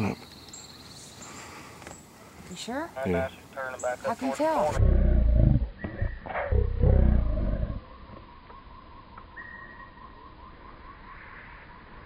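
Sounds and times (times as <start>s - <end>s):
quiet steady high tone: 0.2s - 12.0s.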